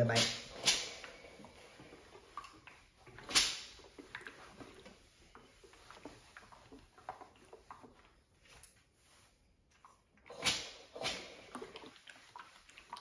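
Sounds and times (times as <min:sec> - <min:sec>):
loud swish: 0:00.0 - 0:01.1
shirt rustling: 0:00.0 - 0:13.0.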